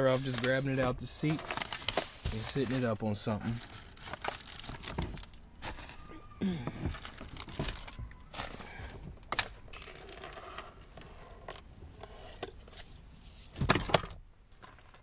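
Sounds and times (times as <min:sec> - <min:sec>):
plastic knocks and rattles: 0:06.6 - 0:08.2.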